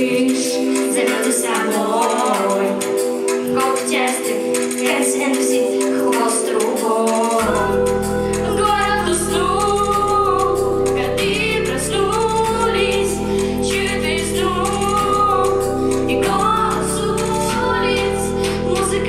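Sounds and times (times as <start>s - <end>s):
pop backing track: 0.0s - 19.0s
young female voices singing: 0.0s - 19.0s
deep bass: 7.4s - 19.0s.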